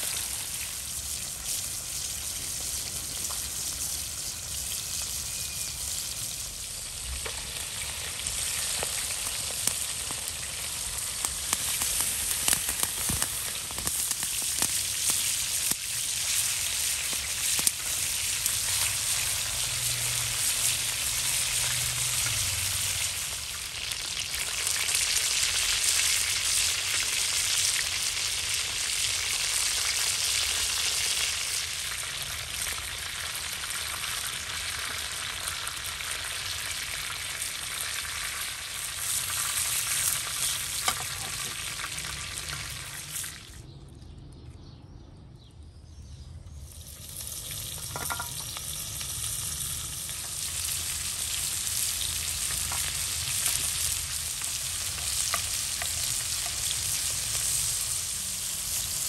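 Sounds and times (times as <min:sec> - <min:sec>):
chicken sizzling in hot oil: 0:00.0 - 0:43.6, 0:46.6 - 0:59.0
utensils scraping and tapping pan: 0:47.7 - 0:48.6.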